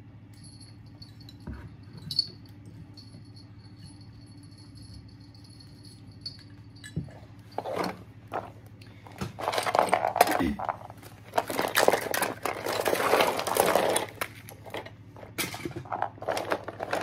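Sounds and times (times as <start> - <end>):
faint steady hum: 0.0 - 17.0
small toys clicking and rattling: 9.4 - 17.0.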